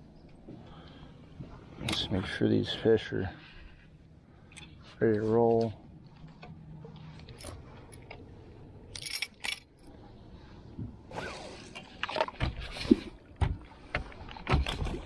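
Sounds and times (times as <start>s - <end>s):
fishing tackle handling noises: 4.4s - 10.0s
dull knocks: 13.4s - 15.0s.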